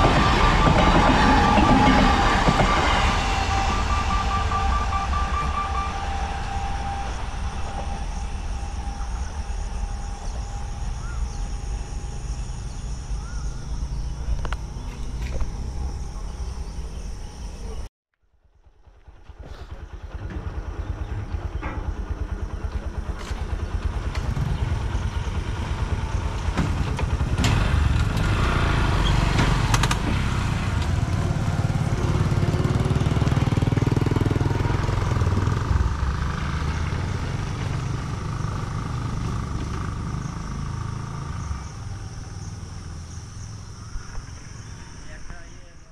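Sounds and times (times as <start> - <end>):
road traffic rumble: 0.0 - 17.9, 18.8 - 45.9
motorcycle engines pulling away: 7.1 - 17.7, 19.3 - 45.3.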